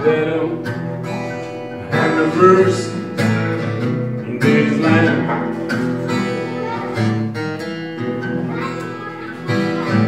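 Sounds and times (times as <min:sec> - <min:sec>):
acoustic guitar playing blues: 0:00.0 - 0:10.0
person singing: 0:01.8 - 0:03.0, 0:04.3 - 0:05.5.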